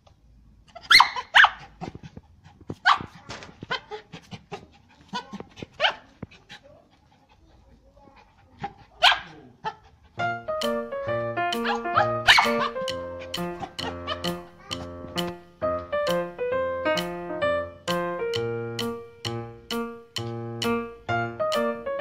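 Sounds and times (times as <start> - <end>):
small dog barking sharply: 0.9 - 1.6, 9.0 - 9.3, 11.6 - 12.9.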